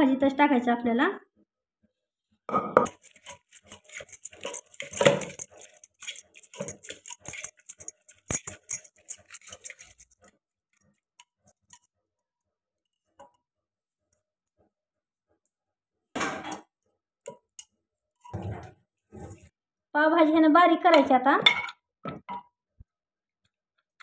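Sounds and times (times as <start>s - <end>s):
metal utensils and pot clattering: 2.6s - 10.3s.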